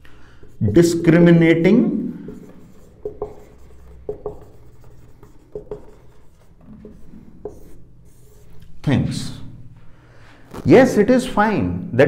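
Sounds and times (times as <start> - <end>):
marker squeaking on a whiteboard: 0.4 - 8.8.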